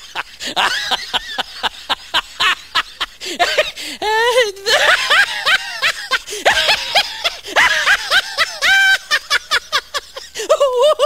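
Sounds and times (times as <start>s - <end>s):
high-pitched laughter: 4.1s - 11.0s.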